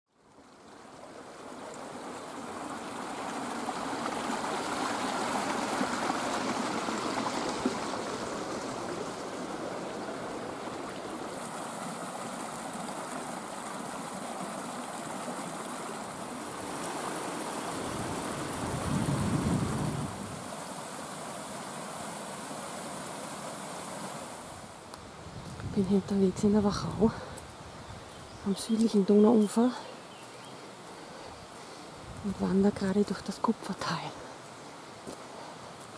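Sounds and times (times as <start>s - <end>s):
brook rushing over rocks: 0.7s - 23.2s.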